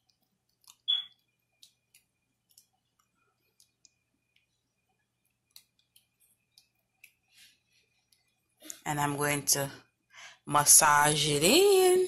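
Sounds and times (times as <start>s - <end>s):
faint clicks and taps: 0.0s - 8.8s.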